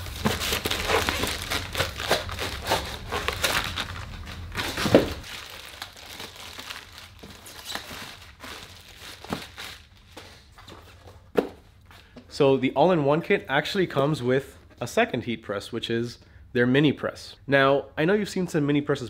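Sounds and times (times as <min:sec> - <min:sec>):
plastic packaging crinkling: 0:00.0 - 0:10.6.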